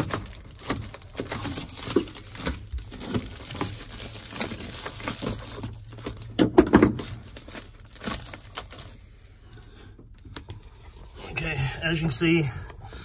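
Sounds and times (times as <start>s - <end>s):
material crinkling and tearing: 0.0s - 12.2s.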